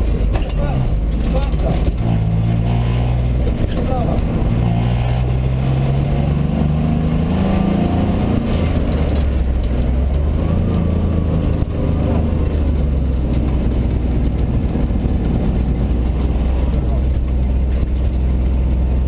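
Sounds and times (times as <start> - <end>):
rally car engine from inside: 0.0 - 19.0.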